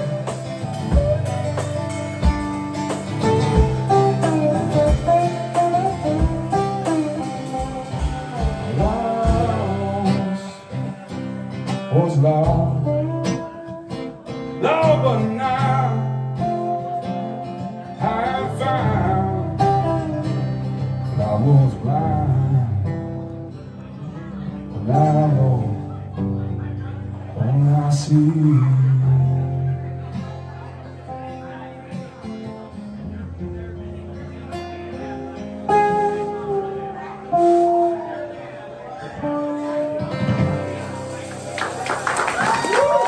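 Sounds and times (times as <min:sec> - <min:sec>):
drum kit playing: 0:00.0 - 0:10.4, 0:40.0 - 0:43.0
strummed acoustic guitar: 0:00.0 - 0:42.5.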